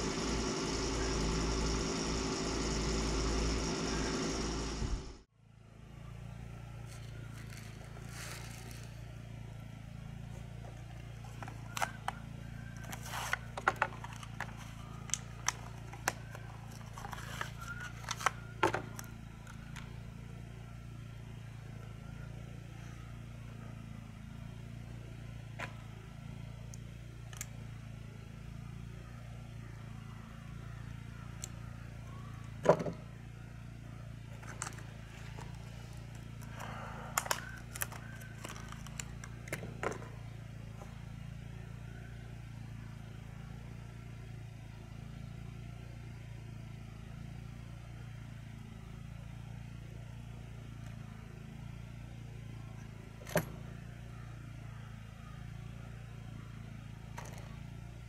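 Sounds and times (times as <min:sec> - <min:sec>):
steady low background hum: 0:00.0 - 0:58.0.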